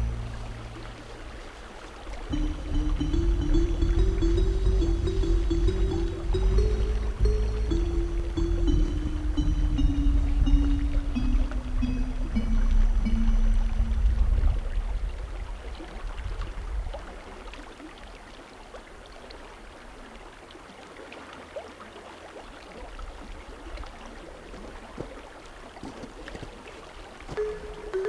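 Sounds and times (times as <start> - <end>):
low hum: 0.0 - 1.6, 2.3 - 15.5
water plinks and trickles: 0.0 - 15.2, 27.3 - 28.0
brook flowing: 0.0 - 28.0.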